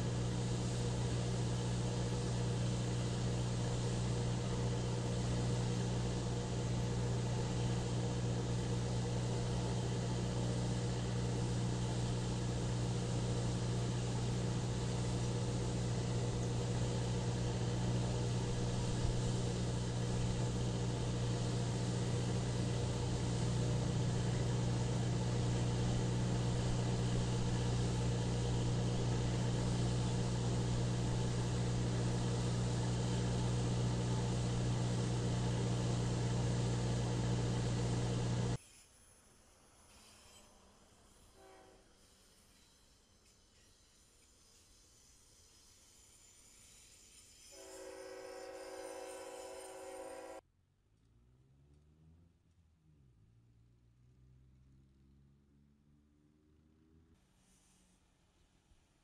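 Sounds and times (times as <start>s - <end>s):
low engine hum: 0.0s - 38.6s.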